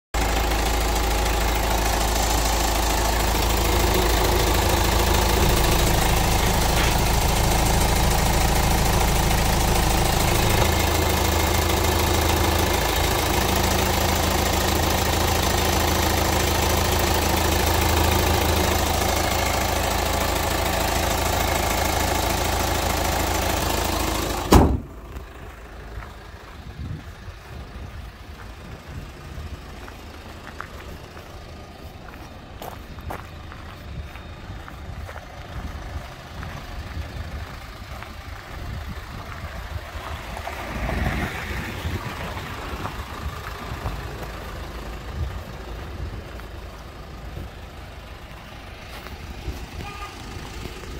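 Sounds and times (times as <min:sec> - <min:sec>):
diesel engine idling: 0:00.1 - 0:50.9
car hood slamming shut: 0:24.5 - 0:25.0.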